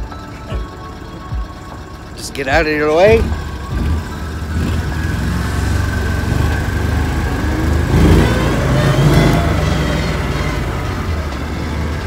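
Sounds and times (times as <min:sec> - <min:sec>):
atv engine running: 0:00.0 - 0:12.0.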